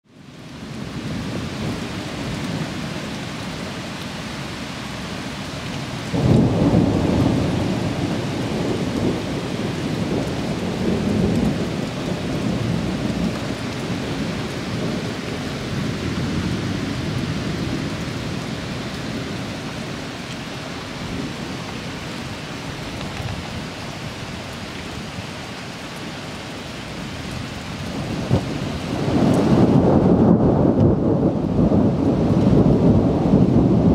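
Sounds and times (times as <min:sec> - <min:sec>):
steady rain: 0:00.0 - 0:33.9
thunder clap and rumble: 0:06.0 - 0:20.0, 0:27.0 - 0:33.9.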